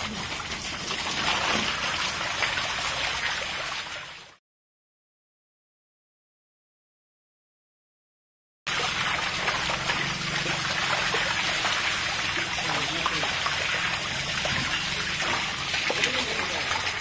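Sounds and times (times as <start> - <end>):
water trickling on tiled floor: 0.0 - 4.3, 8.7 - 17.0.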